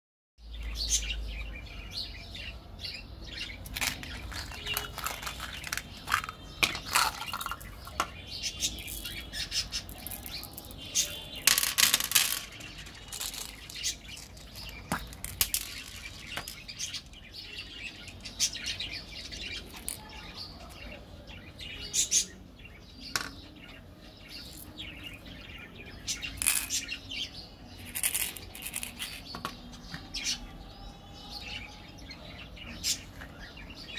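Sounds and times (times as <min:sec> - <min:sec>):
birds chirping: 0:00.4 - 0:33.9
plastic clicks and rustles: 0:03.6 - 0:08.2, 0:09.9 - 0:16.7.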